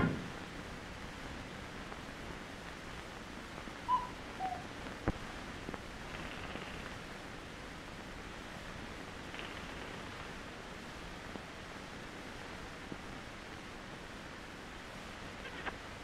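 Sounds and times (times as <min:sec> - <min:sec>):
film soundtrack hiss: 0:00.0 - 0:16.0
whistled notes: 0:03.9 - 0:04.6.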